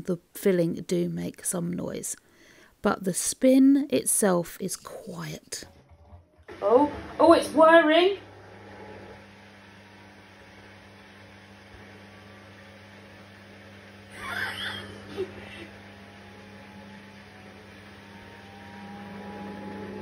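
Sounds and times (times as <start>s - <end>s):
washing machine motor hum: 4.9s - 20.0s
rising whine of drum: 14.1s - 20.0s.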